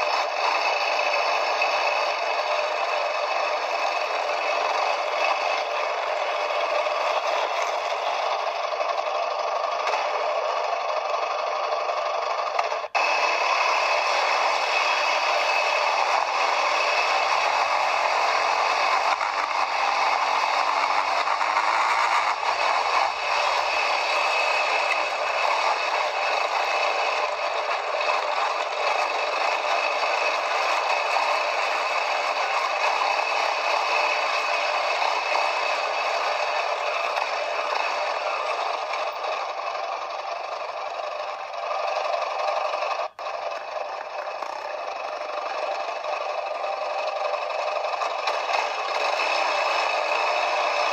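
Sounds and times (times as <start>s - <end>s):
quad bike rattling: 0.0s - 50.9s.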